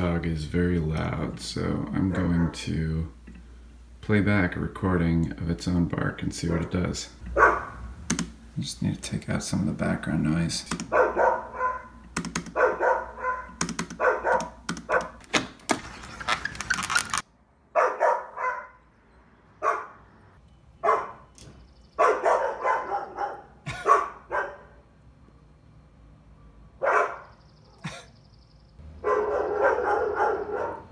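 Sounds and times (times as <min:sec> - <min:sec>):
dog barking: 0:06.5 - 0:06.8, 0:07.4 - 0:07.8, 0:10.9 - 0:15.2, 0:17.7 - 0:18.8, 0:19.6 - 0:20.0, 0:20.8 - 0:21.3, 0:22.0 - 0:24.8, 0:26.8 - 0:27.4, 0:29.0 - 0:30.9
sharp clicks: 0:08.0 - 0:08.4, 0:10.6 - 0:11.0, 0:12.0 - 0:12.6, 0:13.6 - 0:15.8.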